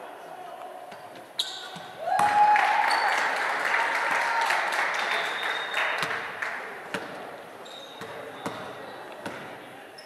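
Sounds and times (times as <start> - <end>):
sneaker squeaks: 0.9 - 2.0, 7.6 - 10.0
spectators applauding: 2.3 - 6.8
basketball bouncing: 8.0 - 9.6.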